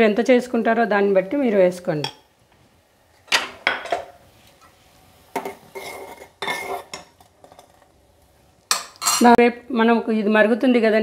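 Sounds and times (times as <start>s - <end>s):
spoon stirring in metal pot: 5.3s - 7.9s, 8.7s - 9.3s.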